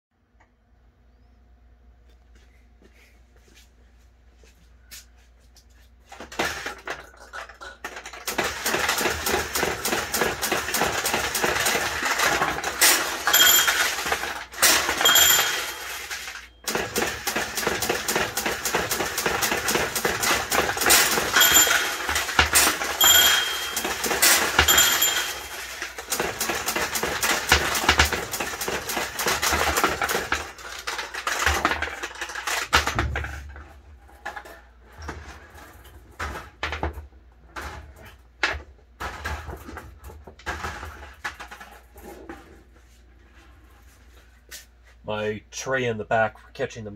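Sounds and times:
pachinko balls clattering: 6.1s - 34.9s, 35.5s - 42.2s
short metallic dings: 13.3s - 14.0s, 14.9s - 16.2s, 21.1s - 25.8s.

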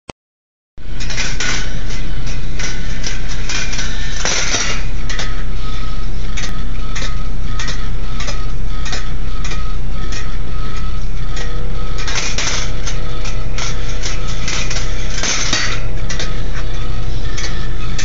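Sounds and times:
dense metallic rattles: 0.8s - 5.5s, 6.3s - 18.0s
steady low hum: 0.8s - 18.0s
steel balls rolling on wire tracks: 0.8s - 18.0s
thin ringing tone: 0.8s - 18.0s.

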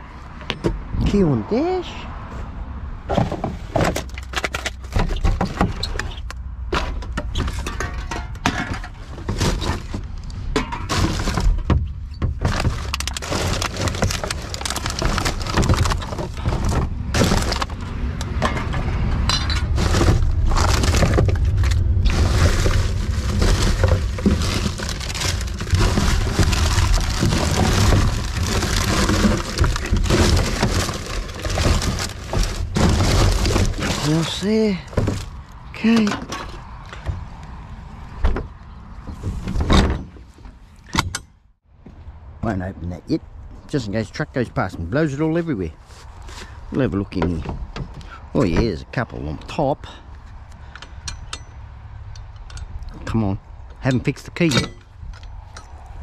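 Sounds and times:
bottles and cans clattering: 10.6s - 17.7s, 22.1s - 35.3s
paper and plastic rustling: 12.4s - 17.8s, 19.7s - 35.3s.

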